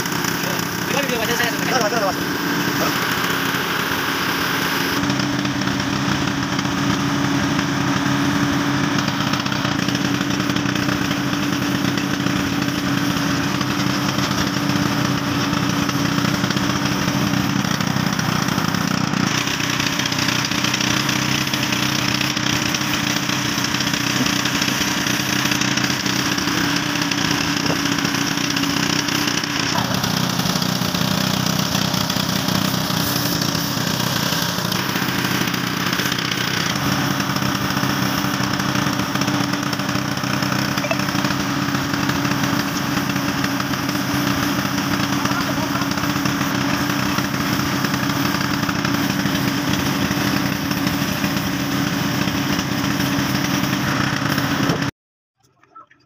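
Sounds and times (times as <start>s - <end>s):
engine droning: 0.0s - 54.9s
spray gun hissing: 9.8s - 54.5s.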